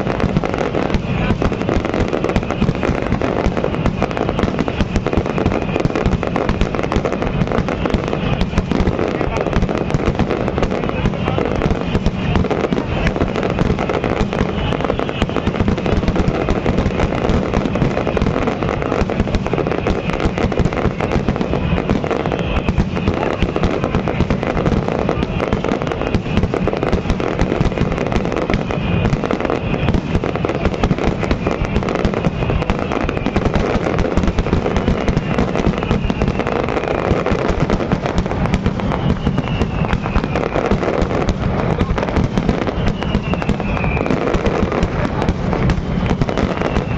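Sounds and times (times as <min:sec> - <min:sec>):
fireworks bangs and crackling: 0:00.0 - 0:46.9
faint falling whistles: 0:38.8 - 0:40.9, 0:42.5 - 0:44.3, 0:46.0 - 0:46.9.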